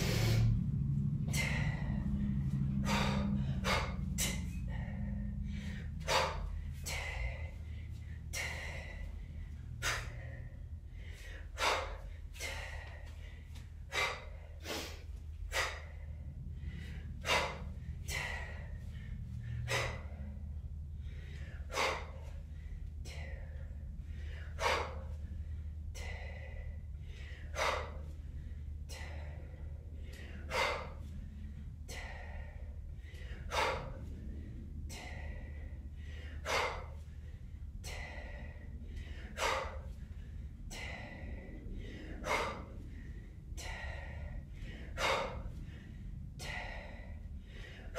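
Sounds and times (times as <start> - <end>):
woman exhaling forcefully: 0.0 - 7.6.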